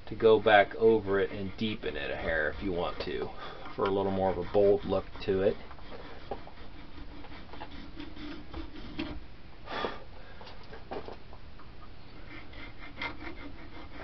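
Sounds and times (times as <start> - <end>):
file scraping in a groove: 0.1 - 9.2, 12.2 - 14.0.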